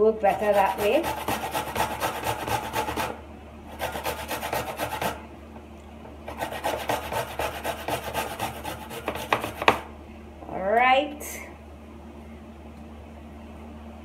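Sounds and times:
ginger grated on metal grater: 0.2s - 5.2s, 6.3s - 9.8s.

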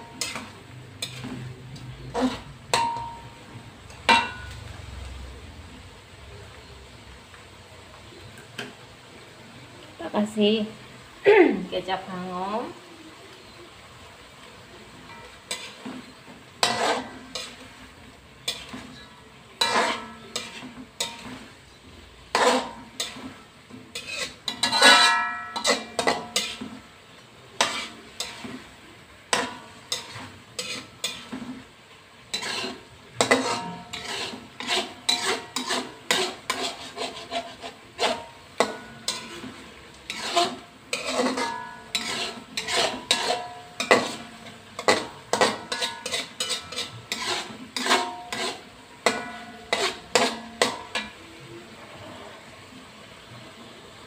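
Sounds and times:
spatula scraping metal wok: 0.0s - 5.4s, 14.8s - 52.6s.

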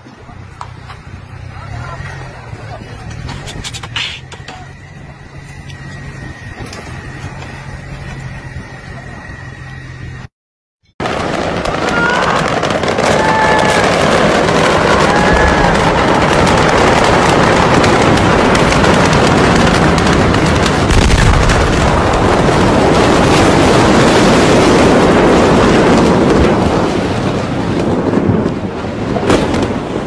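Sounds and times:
heavy shockwave roar: 0.0s - 10.3s, 11.0s - 30.0s
crackling popping din: 11.0s - 23.8s
deep explosion blast: 11.0s - 30.0s.

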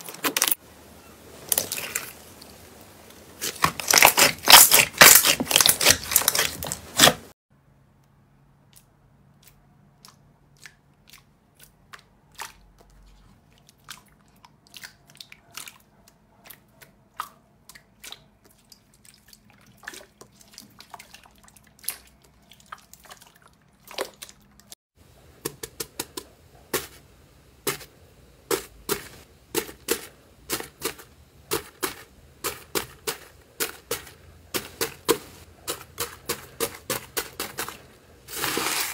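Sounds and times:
slime crackling and popping: 3.4s - 7.2s
crunchy popping foam slime: 3.4s - 7.4s, 27.6s - 38.9s.

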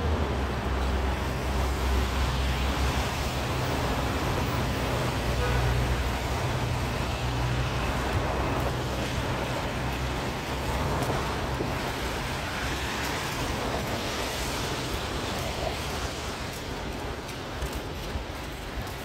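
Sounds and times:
street traffic hiss: 0.0s - 19.0s.

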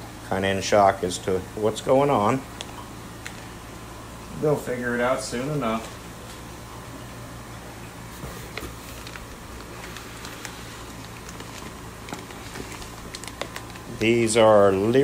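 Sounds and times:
cardboard and plastic bags crinkling: 8.1s - 15.0s.

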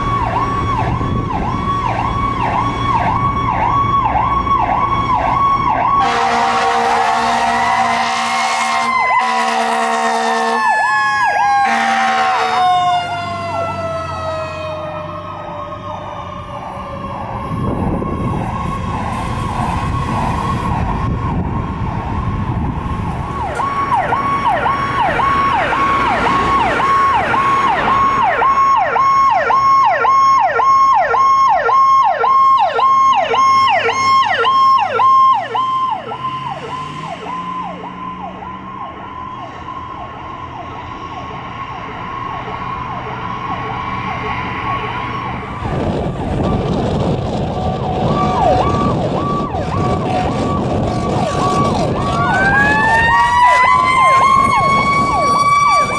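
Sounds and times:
second siren falling in pitch: 0.0s - 21.8s, 23.3s - 55.9s
diesel engine rumbling past: 0.0s - 28.9s, 32.6s - 55.9s
fire engine electronic siren: 0.0s - 55.9s
short horn blasts: 6.0s - 10.7s, 11.6s - 12.6s.

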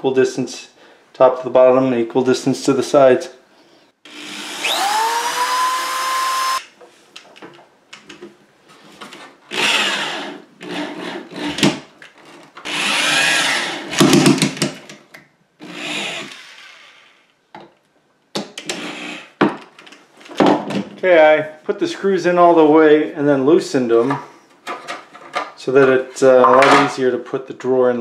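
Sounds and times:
electric drill running: 4.1s - 6.6s, 12.7s - 13.8s.

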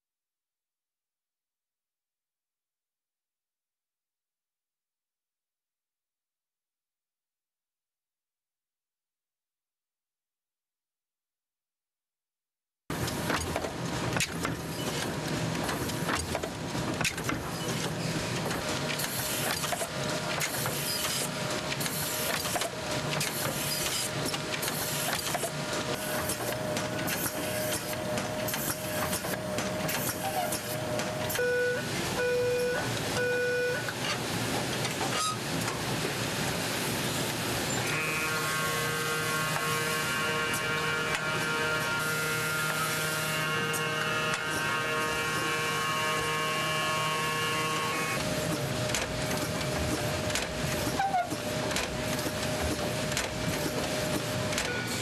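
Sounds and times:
machinery clattering and clicking: 12.9s - 36.7s, 39.4s - 55.0s.

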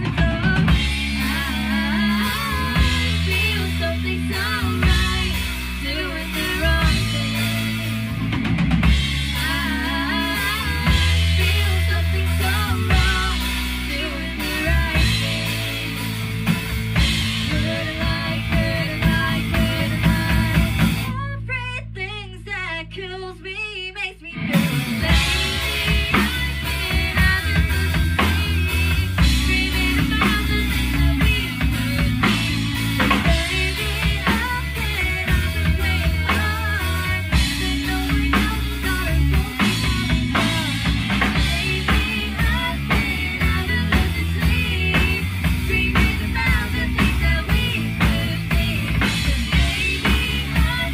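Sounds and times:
rock band playing live: 0.0s - 21.2s, 24.3s - 50.9s
woman singing: 0.0s - 50.9s.

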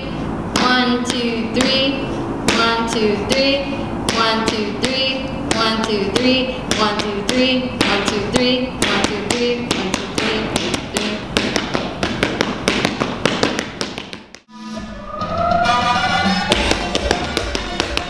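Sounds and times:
sneakers tapping on floor: 4.1s - 14.5s, 16.4s - 18.0s.

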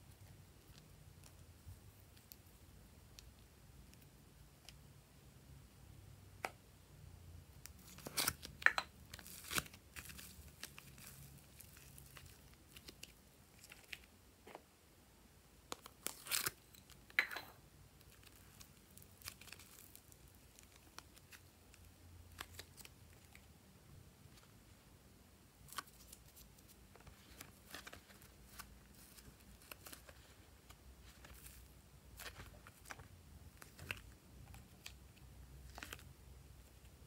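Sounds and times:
slime clicking and crackling: 18.1s - 23.4s.

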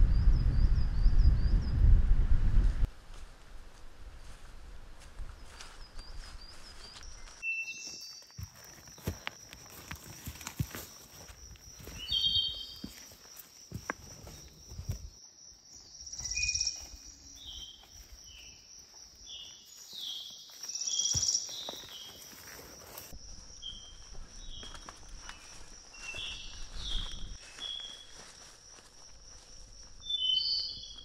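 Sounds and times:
insects trilling: 5.4s - 31.0s
short high insect chirps: 15.8s - 18.6s.

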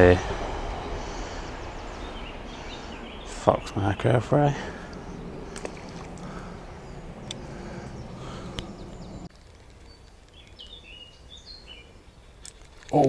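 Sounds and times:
low rumbling noise: 0.0s - 9.3s
faint outdoor ambience: 0.0s - 13.0s
soft clicks: 8.5s - 9.1s.

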